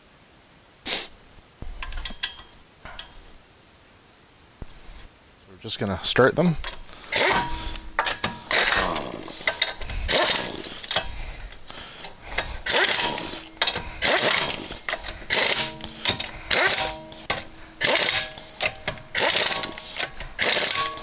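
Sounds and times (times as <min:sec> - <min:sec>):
air ratchet whirring: 0:06.6 - 0:21.0.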